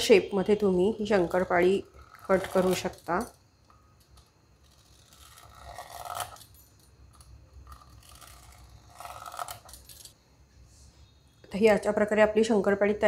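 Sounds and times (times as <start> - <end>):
pastry cutter scraping through dough: 0.3 - 3.3, 4.6 - 6.5, 7.6 - 10.2.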